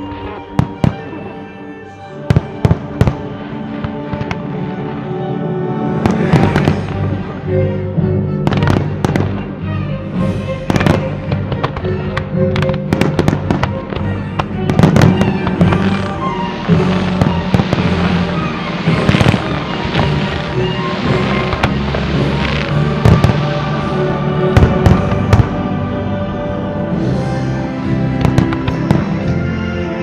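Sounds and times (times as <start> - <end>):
loud music: 0.0 - 30.0
fireworks bangs and cracks: 6.0 - 7.2, 8.4 - 9.5, 10.6 - 25.7, 28.2 - 29.4.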